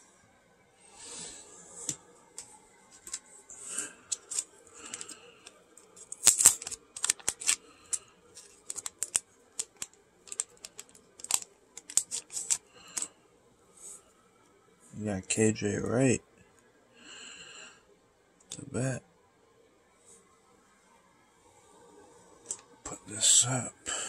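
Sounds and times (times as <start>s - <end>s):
plastic crinkling: 3.0s - 13.1s.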